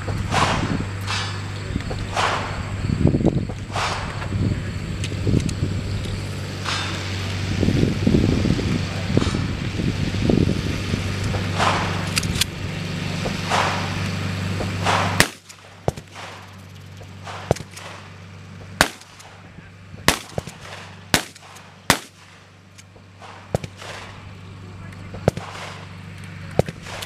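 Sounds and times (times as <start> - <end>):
steady low hum: 0.0 - 27.0
rifle gunshots: 2.0 - 2.6, 11.5 - 12.4, 13.4 - 14.0, 14.7 - 16.6, 17.2 - 18.1, 18.8 - 19.4, 20.0 - 22.5, 23.2 - 24.2, 25.2 - 25.9.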